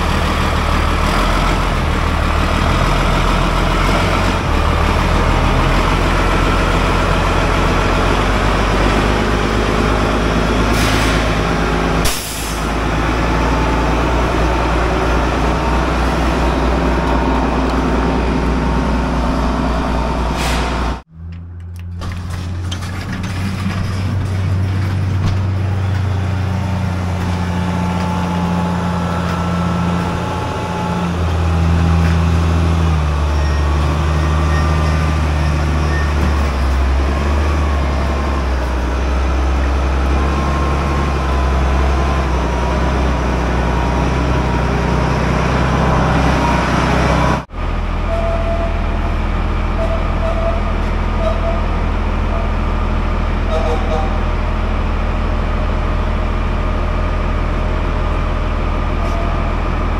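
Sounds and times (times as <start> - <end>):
forklift engine running: 0.0 - 59.9.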